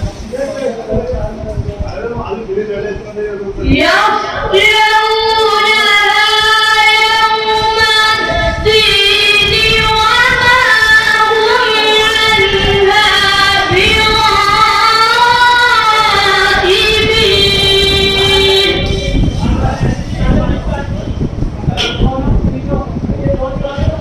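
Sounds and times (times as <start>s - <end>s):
boy reciting melodically: 3.6s - 21.0s.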